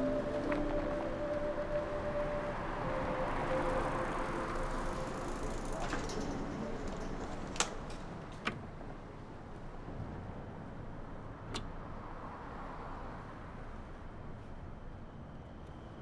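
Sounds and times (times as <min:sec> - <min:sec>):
held music tone: 0:00.0 - 0:07.6
distant traffic hum: 0:00.0 - 0:14.0.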